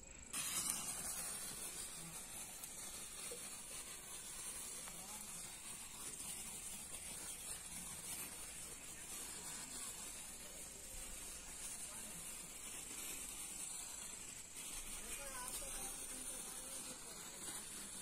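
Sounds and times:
sparkler sizzling hiss: 0:00.0 - 0:18.0.

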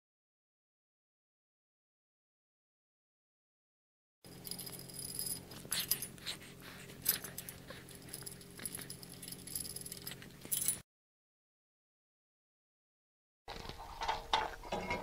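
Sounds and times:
metal bolts and nuts clinking: 0:04.3 - 0:06.1, 0:07.1 - 0:10.8, 0:13.8 - 0:15.0
faint steady hum: 0:04.3 - 0:10.8.

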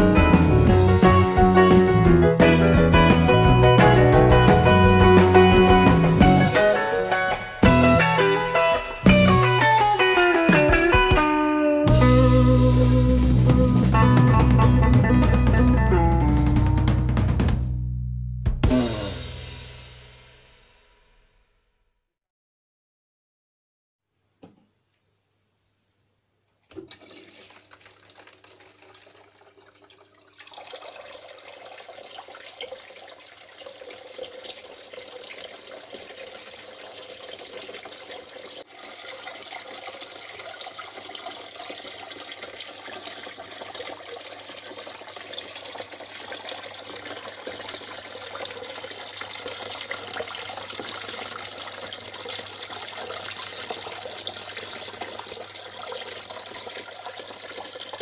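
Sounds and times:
fountain water splashing into basin: 0:00.0 - 0:07.8, 0:26.7 - 0:58.0.

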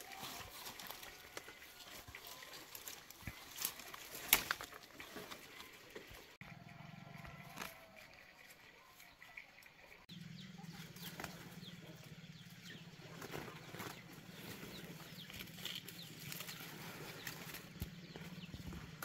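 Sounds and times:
leaves and branches rustling: 0:00.0 - 0:06.4, 0:10.8 - 0:12.1, 0:13.0 - 0:19.0
twig snaps: 0:03.6 - 0:04.8
bird chirps: 0:08.8 - 0:18.9.

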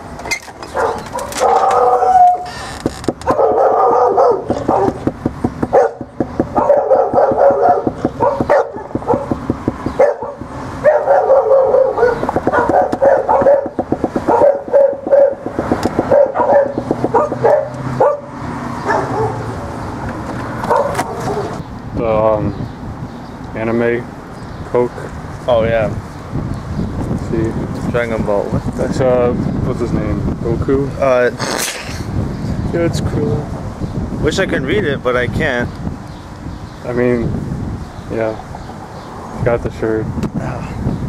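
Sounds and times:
dog barking: 0:00.7 - 0:02.4, 0:03.2 - 0:05.0, 0:05.7 - 0:19.6, 0:20.7 - 0:21.6
knocking on wooden door: 0:04.6 - 0:10.6, 0:12.2 - 0:17.5.

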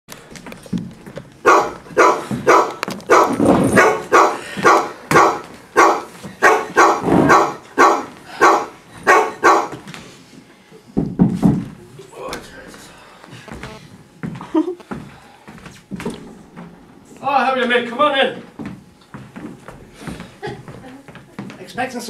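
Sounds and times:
dog barking: 0:01.4 - 0:09.8.

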